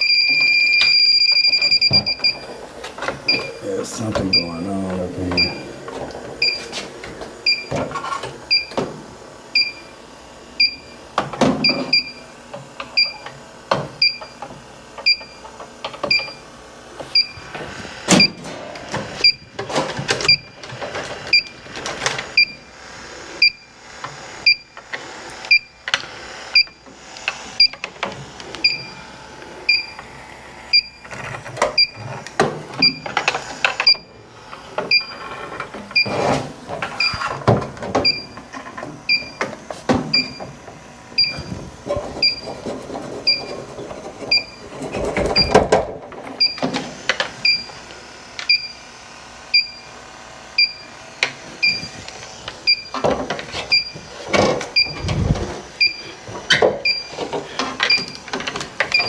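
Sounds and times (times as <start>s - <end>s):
short electronic beeps: 0.0s - 2.4s, 5.4s - 5.6s, 41.2s - 41.5s, 54.8s - 55.0s, 55.8s - 56.0s.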